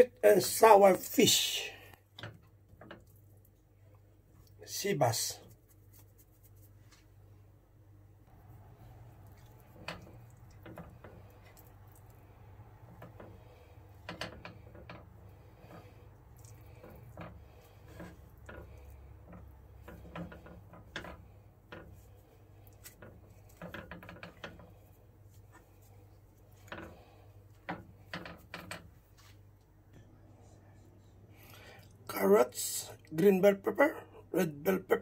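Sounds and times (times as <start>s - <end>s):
low steady hum: 0.0s - 35.0s
rubbing and patting in flour: 4.4s - 7.4s, 8.2s - 29.9s.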